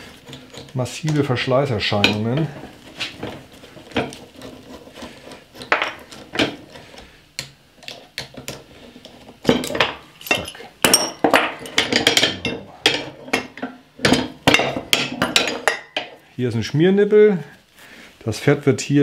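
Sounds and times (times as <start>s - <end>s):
metal parts clanking: 9.5s - 15.9s.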